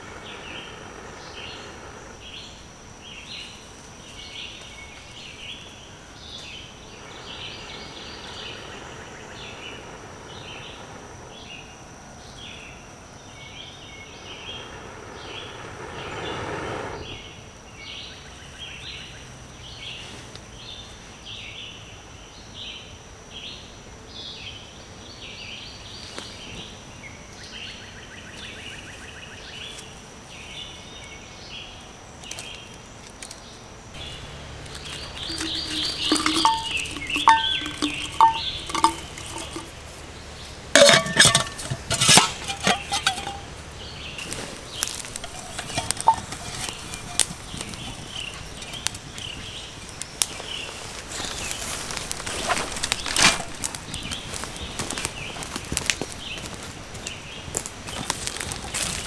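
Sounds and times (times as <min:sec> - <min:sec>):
birds chirping: 0:00.0 - 0:20.0, 0:34.0 - 0:59.0
high insect tone: 0:00.0 - 0:26.0, 0:26.9 - 0:59.0
blowing into tinder: 0:14.2 - 0:17.4
wood clinking against steel container: 0:34.6 - 0:40.0, 0:40.7 - 0:48.8, 0:52.5 - 0:53.7.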